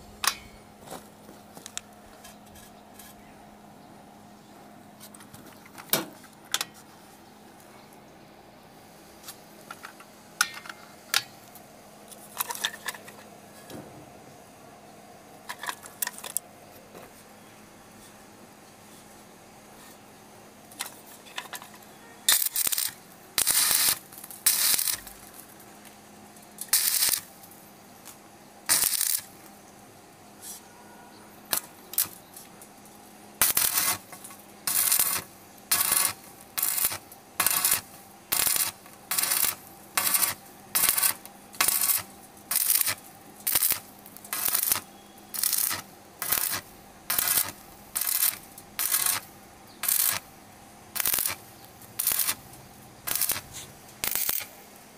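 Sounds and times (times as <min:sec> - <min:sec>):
arc welder bursts: 0:22.3 - 0:25.6, 0:26.6 - 0:29.5, 0:31.5 - 0:32.3, 0:33.1 - 0:54.8.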